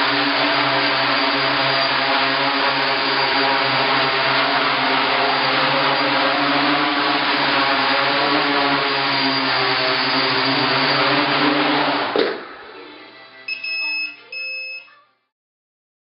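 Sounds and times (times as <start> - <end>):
quadcopter motors whirring: 0.0 - 13.4
short electronic beeps: 13.5 - 15.0.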